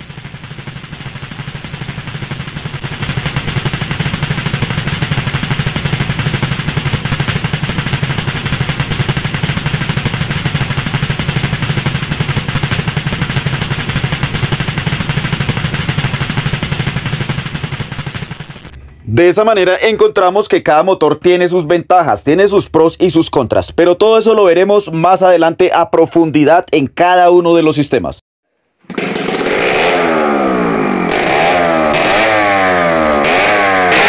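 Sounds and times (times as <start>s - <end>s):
two-stroke engine running: 0.0s - 19.2s, 28.9s - 34.0s.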